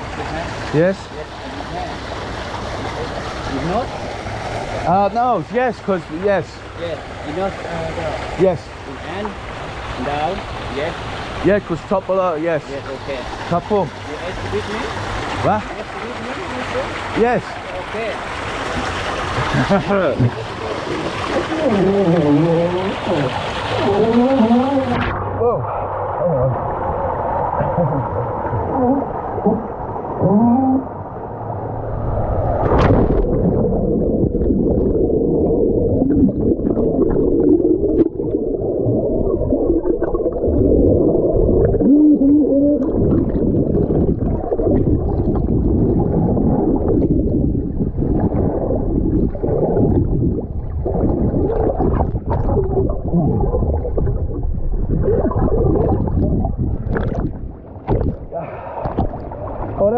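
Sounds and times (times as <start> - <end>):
water rushing along slide: 0.0 - 58.0
knocks and splashes: 14.2 - 25.2, 32.6 - 35.0, 42.9 - 59.9.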